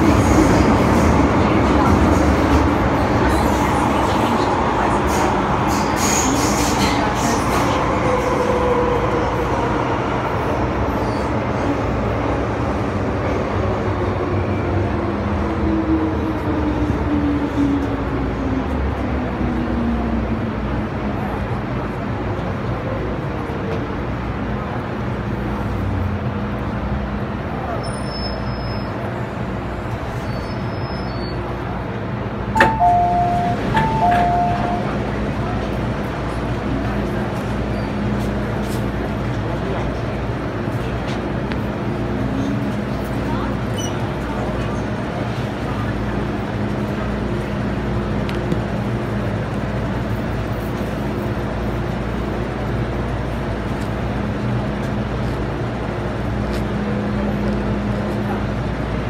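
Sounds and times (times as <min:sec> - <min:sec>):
subway train rumble: 0:00.0 - 0:59.0
two-note train chime: 0:32.6 - 0:35.0.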